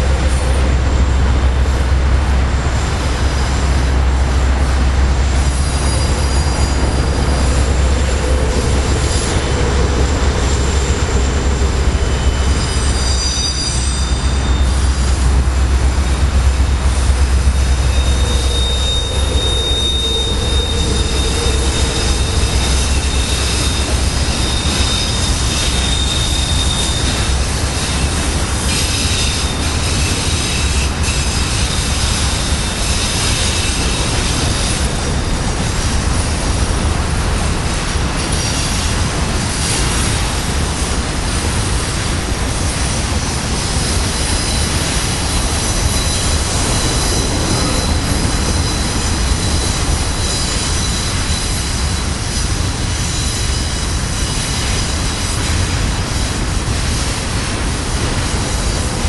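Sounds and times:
freight train wheels rumbling: 0.0 - 59.0
faint high wheel squeal: 5.2 - 36.8, 42.6 - 56.3.

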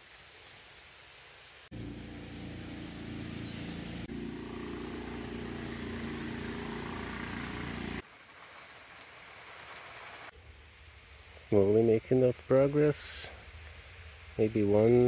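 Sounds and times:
engine humming: 1.7 - 8.0.

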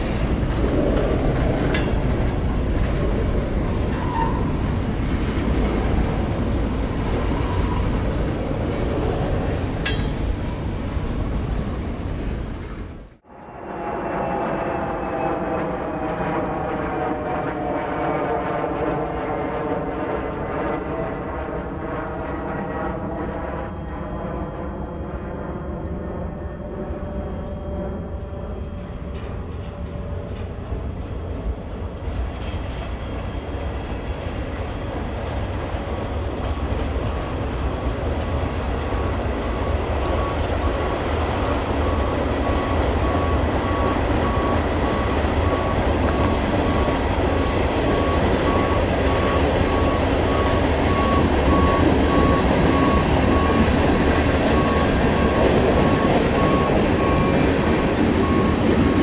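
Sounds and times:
high wheel squeal: 0.0 - 4.7, 5.7 - 12.2, 32.5 - 38.4
train rumbling on rails: 0.0 - 59.0.

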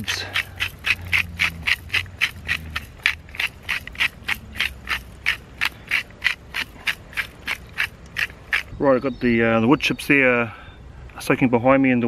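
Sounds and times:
salt grinder crunching clicks: 0.0 - 8.7.

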